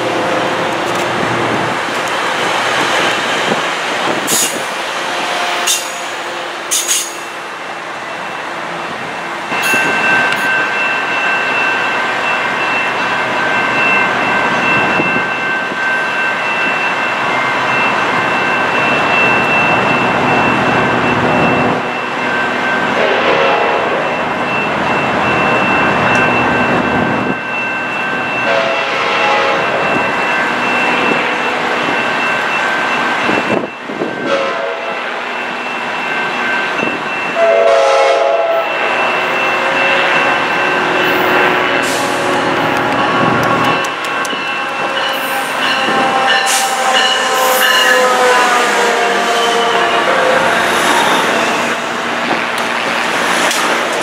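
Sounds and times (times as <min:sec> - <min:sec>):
train rumble: 0:00.0 - 0:54.0
train horn: 0:23.0 - 0:24.0, 0:28.5 - 0:29.8, 0:34.2 - 0:35.0, 0:37.4 - 0:38.8, 0:41.1 - 0:51.6.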